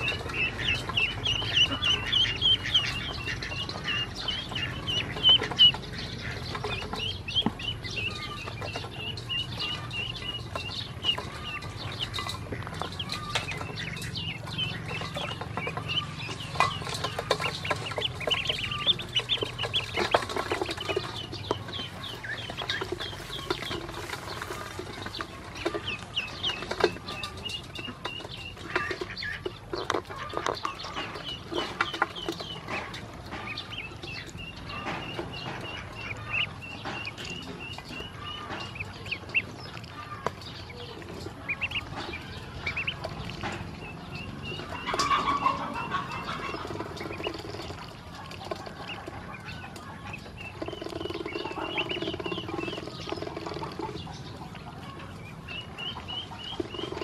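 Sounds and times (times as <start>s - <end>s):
ducklings peeping: 0.0s - 57.0s.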